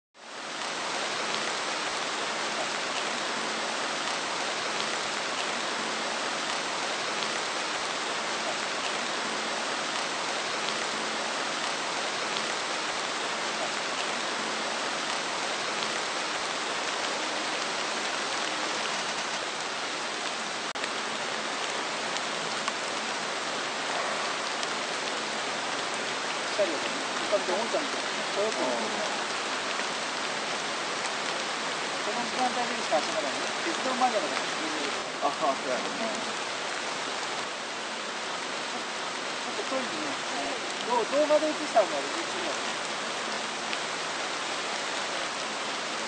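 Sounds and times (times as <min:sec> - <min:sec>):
heavy rain hissing: 0:00.2 - 0:46.0.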